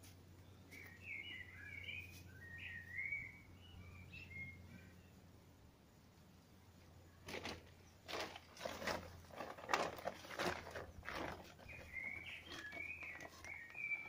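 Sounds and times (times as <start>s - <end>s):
bird chirping: 0.4s - 5.3s, 10.7s - 14.0s
scuffing and rustling: 7.3s - 14.0s.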